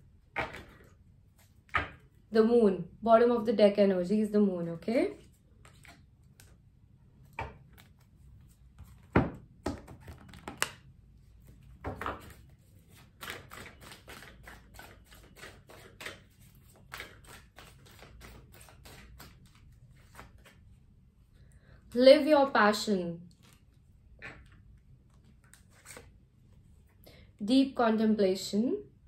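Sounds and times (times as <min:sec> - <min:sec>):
cards shuffling and clicking: 0:11.5 - 0:20.6.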